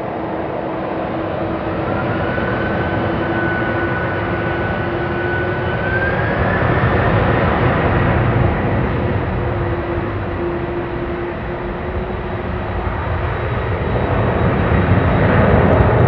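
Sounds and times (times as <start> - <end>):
jet engines rumbling and whining: 0.0 - 16.0.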